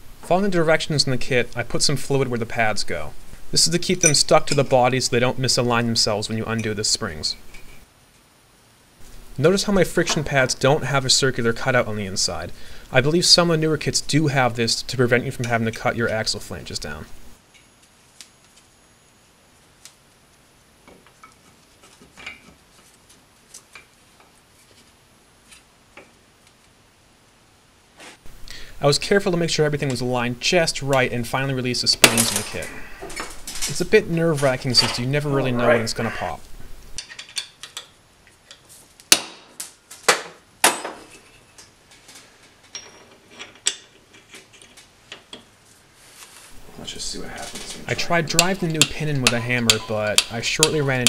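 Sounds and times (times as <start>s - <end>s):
metal tools clanking: 4.0s - 4.7s, 32.0s - 36.0s, 42.7s - 44.7s.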